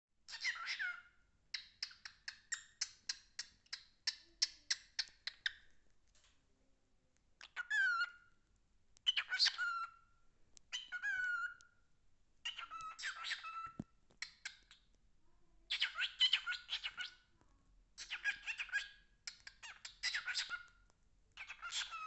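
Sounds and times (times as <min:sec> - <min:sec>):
cockatiel chirping: 0:00.3 - 0:05.7, 0:07.4 - 0:08.3, 0:09.0 - 0:11.7, 0:12.4 - 0:15.0, 0:15.7 - 0:17.4, 0:18.0 - 0:22.0
cockatiel whistling: 0:09.1 - 0:10.0, 0:10.7 - 0:11.6, 0:12.4 - 0:13.8.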